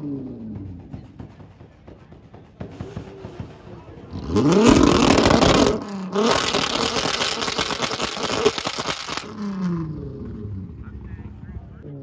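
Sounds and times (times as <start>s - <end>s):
racing car engine revving: 2.6s - 12.0s.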